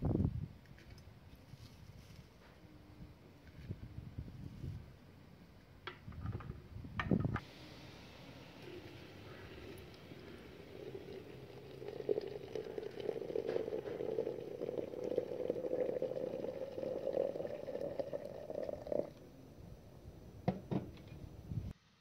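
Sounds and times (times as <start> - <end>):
water pouring into teapot: 7.9 - 19.2.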